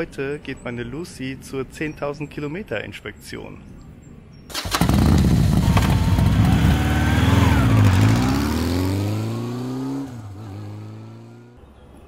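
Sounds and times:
motorcycle engine revving: 0:04.5 - 0:11.6.

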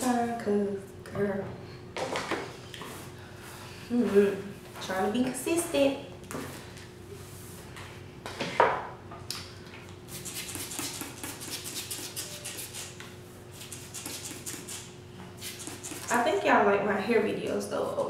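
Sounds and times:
spray bottle spritzing water: 0:10.1 - 0:13.0, 0:13.6 - 0:16.2.

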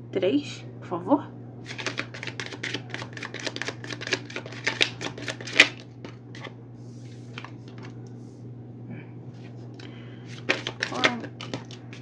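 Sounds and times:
cards being shuffled: 0:01.7 - 0:06.5, 0:09.8 - 0:12.0
cards tapping: 0:01.7 - 0:06.5, 0:09.8 - 0:12.0.

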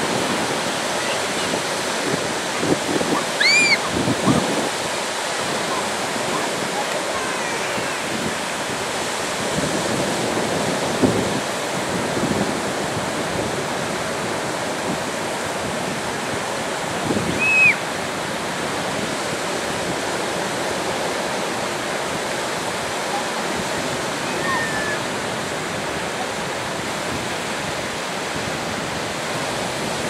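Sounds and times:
small waves breaking: 0:00.0 - 0:30.0
high falling cry: 0:03.2 - 0:04.0.

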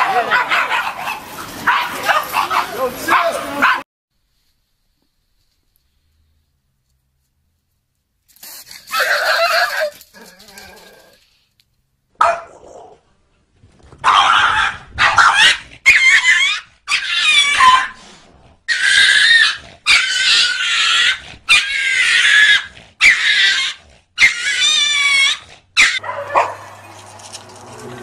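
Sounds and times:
dog whining cries: 0:18.7 - 0:26.5.

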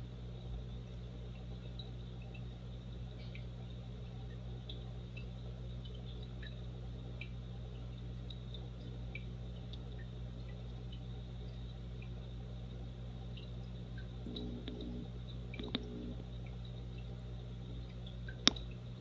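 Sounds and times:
aquarium filter humming: 0:00.0 - 0:19.0
water dripping and plinking: 0:13.2 - 0:17.2, 0:17.8 - 0:19.0.

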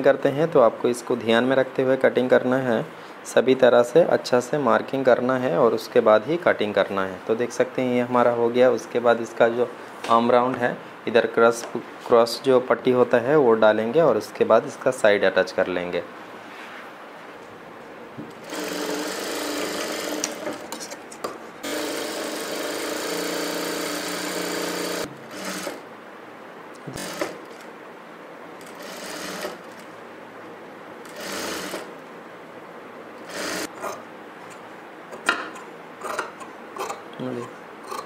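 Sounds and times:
sewing machine stitching: 0:18.4 - 0:20.7, 0:21.6 - 0:25.8, 0:26.9 - 0:27.7, 0:28.6 - 0:29.9, 0:31.0 - 0:31.9, 0:33.2 - 0:34.0.

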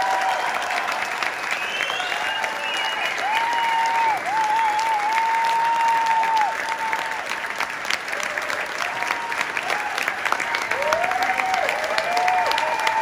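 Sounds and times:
audience applauding: 0:00.0 - 0:13.0
long wavering whistle: 0:01.4 - 0:04.0.

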